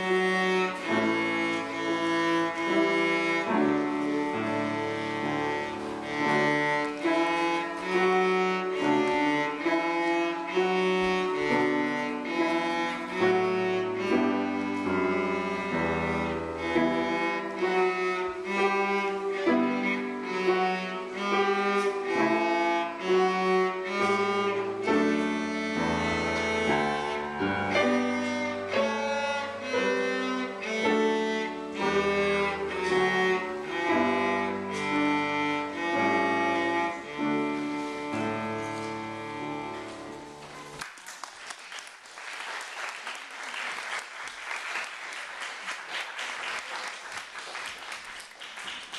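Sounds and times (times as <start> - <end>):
bowed cello playing: 0.0 - 40.8
audience applause: 40.7 - 48.9.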